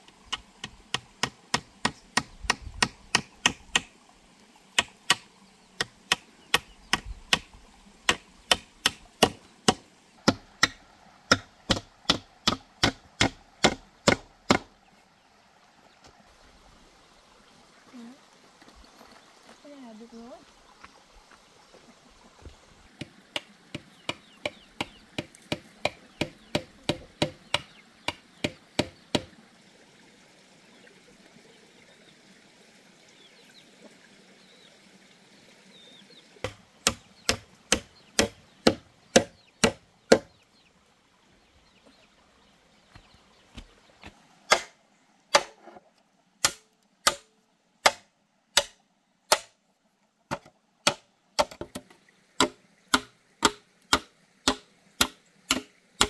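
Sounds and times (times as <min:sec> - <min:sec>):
hammer striking bamboo posts: 0:00.3 - 0:03.9, 0:04.8 - 0:07.5, 0:08.1 - 0:14.7, 0:22.9 - 0:29.3, 0:36.4 - 0:40.3, 0:44.5 - 0:45.7, 0:46.4 - 0:49.6, 0:50.3 - 0:56.0.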